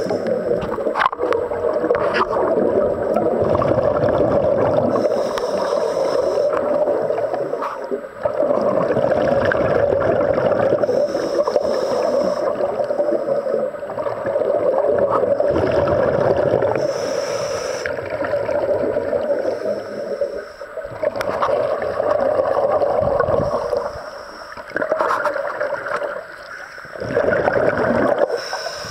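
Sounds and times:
exhaled bubbles gurgling: 0.0s - 28.9s
regulator breathing hiss: 4.9s - 7.9s, 10.8s - 13.7s, 16.7s - 18.1s, 19.2s - 20.8s, 23.4s - 24.7s, 28.3s - 28.9s.

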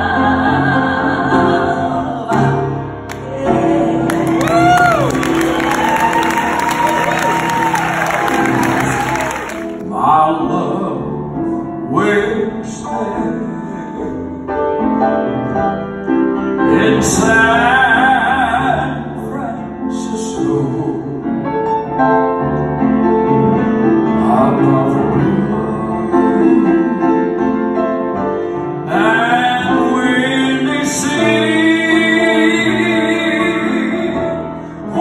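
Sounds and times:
grand piano: 0.0s - 35.0s
man singing a slow ballad: 9.8s - 14.5s, 16.6s - 21.4s, 24.0s - 27.4s, 28.8s - 35.0s.

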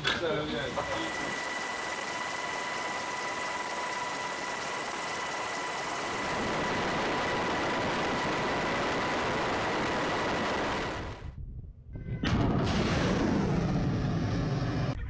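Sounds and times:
machine rumble and hiss: 0.0s - 11.0s
faint high whine: 0.4s - 11.0s.

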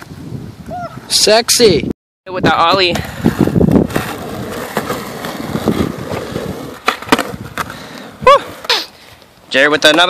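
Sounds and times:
skateboard wheels rolling on asphalt: 2.4s - 10.0s
person crying out: 8.2s - 8.9s.

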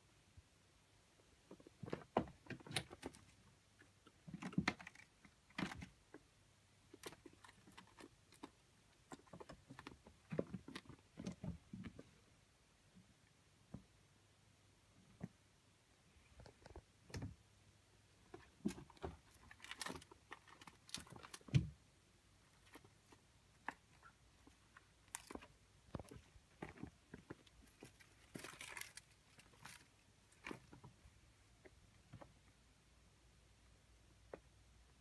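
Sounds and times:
kittens playing with toys: 6.8s - 12.2s, 18.3s - 21.8s, 22.4s - 31.0s.

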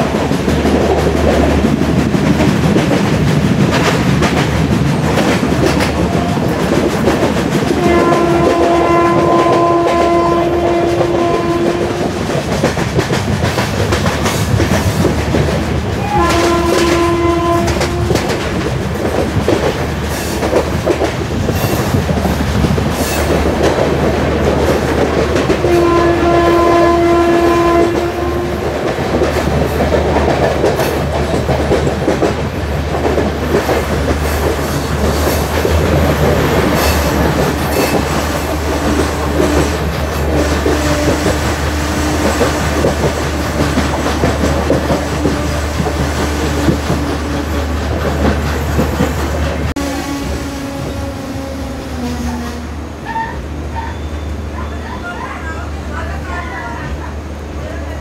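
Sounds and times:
train coaches clattering on track: 0.0s - 58.0s
locomotive horn blasts: 7.7s - 12.2s, 16.0s - 18.4s, 25.6s - 28.8s, 37.9s - 47.6s, 49.8s - 54.8s.

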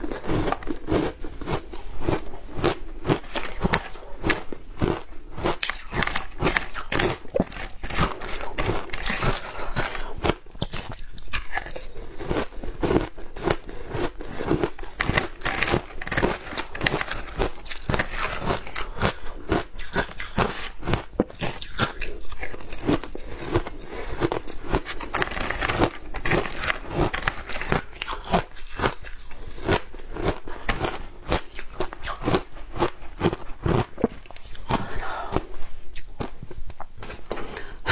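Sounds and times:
ice being chewed: 0.0s - 37.7s.

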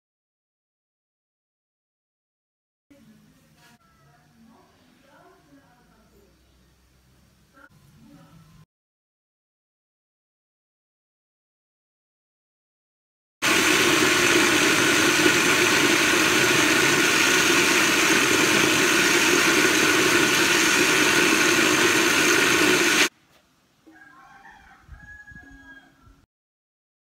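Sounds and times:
electric blender running: 13.4s - 23.1s.

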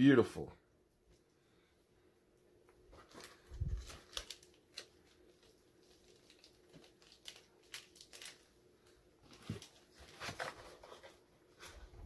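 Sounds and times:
clicks and rustles of packaging: 2.9s - 11.8s.

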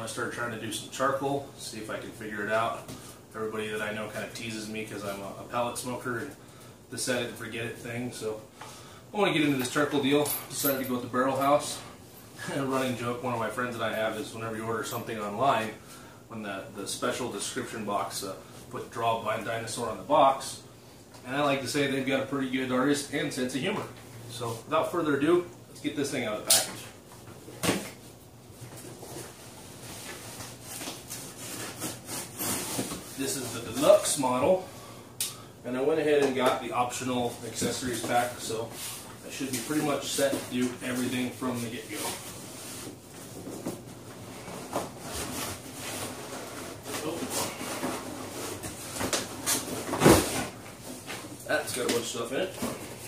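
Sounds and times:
cardboard rustling and scraping: 28.6s - 34.2s, 37.3s - 53.0s.

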